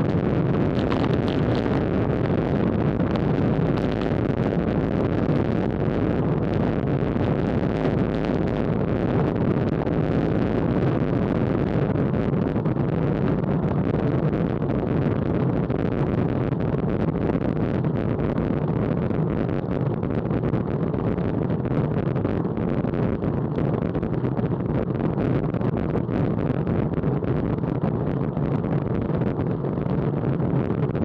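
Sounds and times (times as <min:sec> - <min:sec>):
road noise: 0:00.0 - 0:02.2
wind buffeting microphone: 0:00.0 - 0:31.0.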